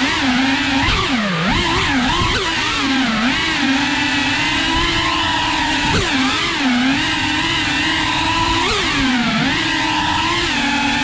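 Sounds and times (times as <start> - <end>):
drone motors whining: 0.0 - 11.0.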